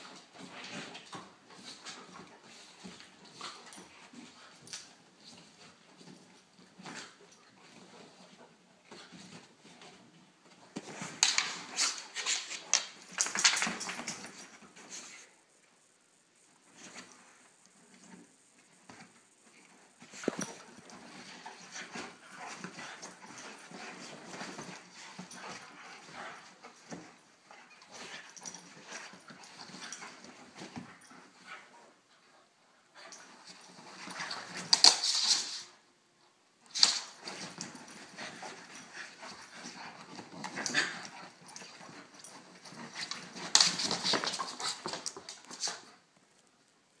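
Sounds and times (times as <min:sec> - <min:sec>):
dogs growling playfully: 0:37.6 - 0:43.4.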